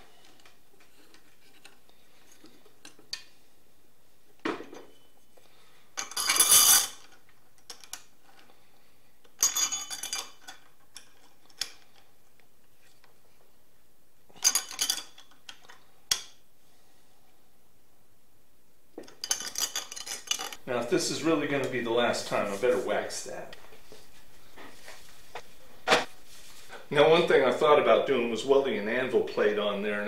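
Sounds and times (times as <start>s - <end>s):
metal parts clinking and rattling: 6.0s - 8.4s, 9.4s - 12.0s, 14.4s - 16.2s, 19.1s - 20.6s.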